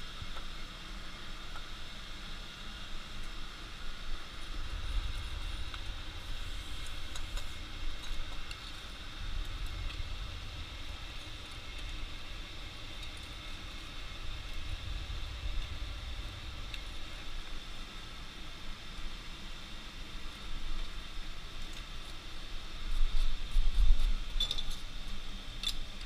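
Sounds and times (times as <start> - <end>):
forge air blast rumble: 3.0 - 8.1, 8.9 - 19.4.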